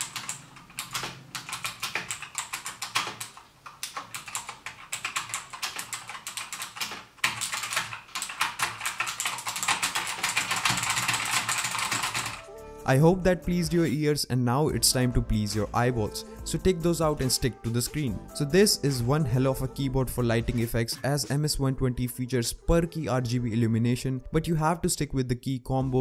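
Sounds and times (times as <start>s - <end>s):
clicky keyboard typing: 0.0s - 12.5s.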